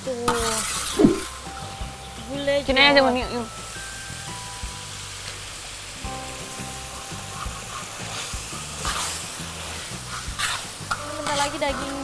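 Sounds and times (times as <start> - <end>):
background music: 0.0 - 12.0
paste sizzling in a wok: 0.0 - 12.0
metal spatula scraping a pan: 7.1 - 12.0.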